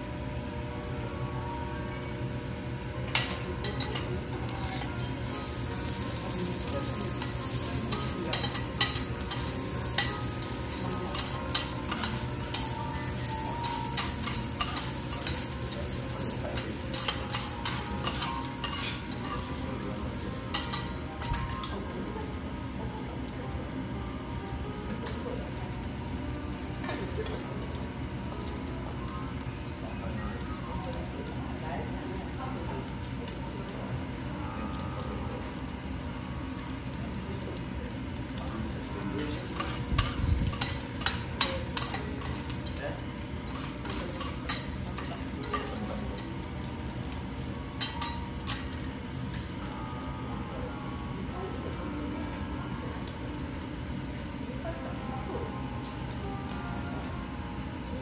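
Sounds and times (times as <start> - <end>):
food sizzling on a griddle: 0.0 - 58.0
utensils clicking and tapping: 3.1 - 21.9, 39.2 - 49.5.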